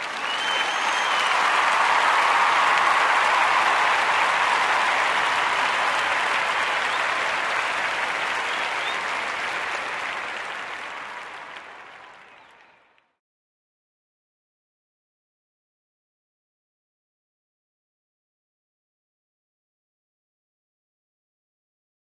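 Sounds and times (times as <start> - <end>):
crowd applause: 0.0 - 13.1.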